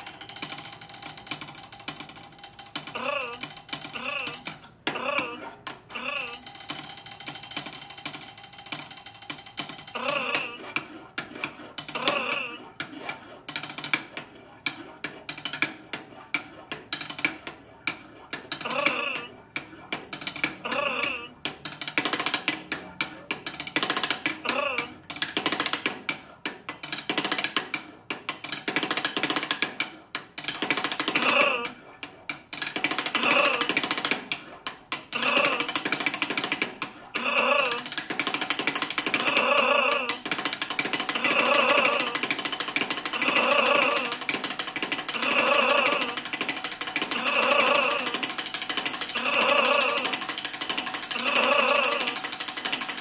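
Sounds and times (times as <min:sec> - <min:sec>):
voice-like pitched syllables: 0:04.0 - 0:06.4, 0:18.6 - 0:19.4, 0:37.2 - 0:37.9.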